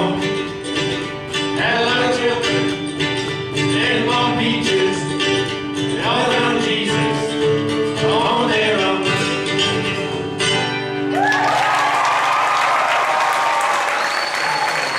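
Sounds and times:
person singing: 0:00.0 - 0:00.7, 0:01.4 - 0:10.2
acoustic folk band playing: 0:00.0 - 0:11.5
audience applause and cheering: 0:11.1 - 0:14.9.

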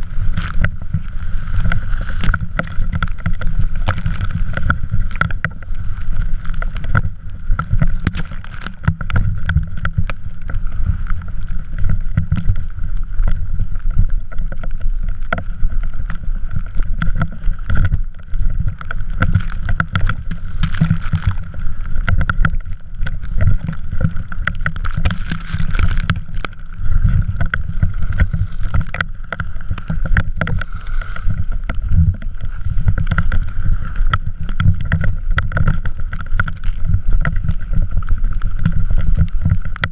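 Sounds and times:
wind buffeting microphone: 0:00.0 - 0:14.6, 0:15.3 - 0:39.9
wheels and frame rattling: 0:00.0 - 0:39.9.

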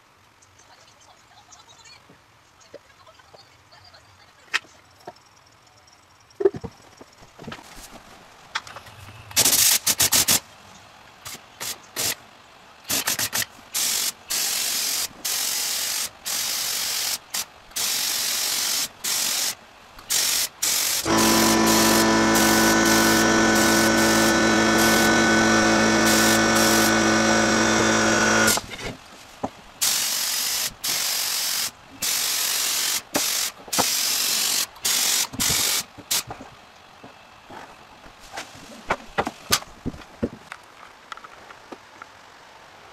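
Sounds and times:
spray gun hissing: 0:12.9 - 0:28.6, 0:29.8 - 0:36.2
steady hum: 0:17.2 - 0:29.0.

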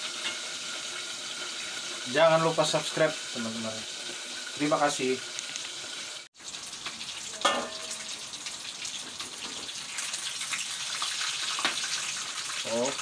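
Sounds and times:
spatula turning food in pan: 0:00.0 - 0:02.1, 0:05.3 - 0:12.6
chicken frying in hot oil: 0:00.0 - 0:13.0.

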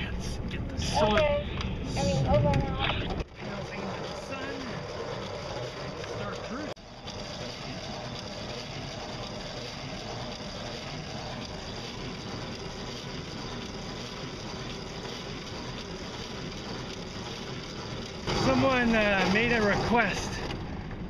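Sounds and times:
pedal chain drive running: 0:00.0 - 0:21.0.

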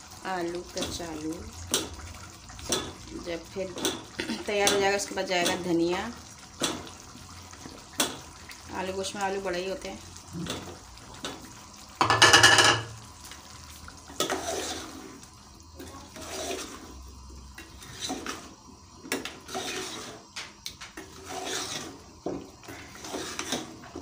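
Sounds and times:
curry sloshing in a pot: 0:00.0 - 0:18.6, 0:19.2 - 0:20.3, 0:21.0 - 0:24.0
spoon clinking and scraping pot: 0:12.0 - 0:13.0.

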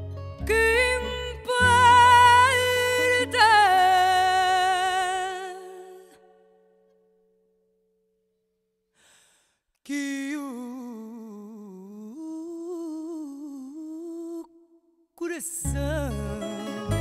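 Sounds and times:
person breathing in: 0:08.9 - 0:09.7
musical accompaniment: 0:15.7 - 0:17.0.

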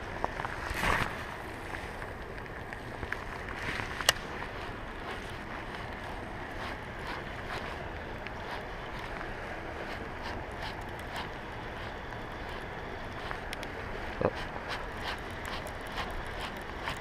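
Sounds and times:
wind and light rain hiss: 0:00.0 - 0:17.0.

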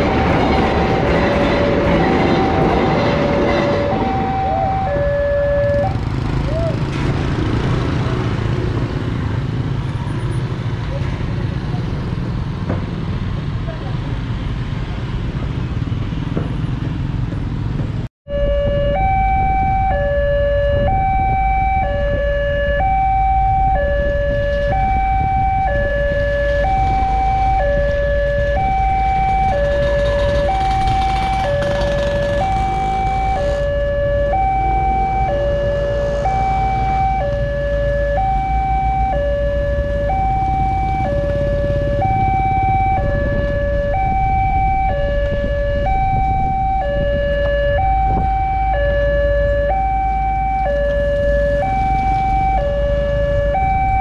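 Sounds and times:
two-tone crossing alarm: 0:00.0 - 0:06.7, 0:18.3 - 0:54.0
motorcycles riding over crossing: 0:02.4 - 0:18.0, 0:26.0 - 0:49.5.

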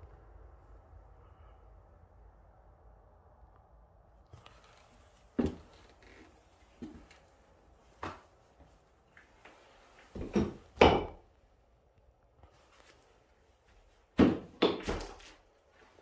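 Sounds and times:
knocks and clunks: 0:10.1 - 0:11.2, 0:14.2 - 0:15.3.

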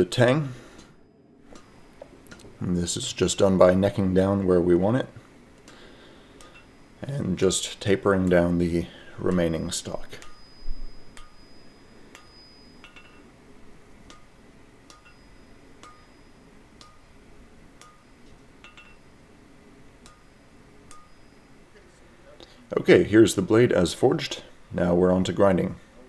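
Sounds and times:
hammer striking steel on anvil: 0:06.4 - 0:06.9, 0:09.3 - 0:13.3, 0:14.0 - 0:17.1, 0:17.8 - 0:19.2, 0:20.0 - 0:21.5.

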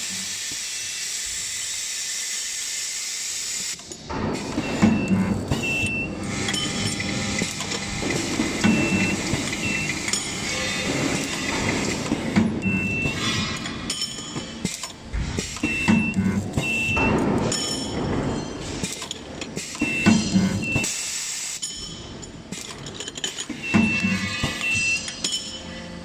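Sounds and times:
pneumatic electrode strokes: 0:00.0 - 0:17.7, 0:23.4 - 0:26.0
steady machine noise: 0:00.0 - 0:26.0.

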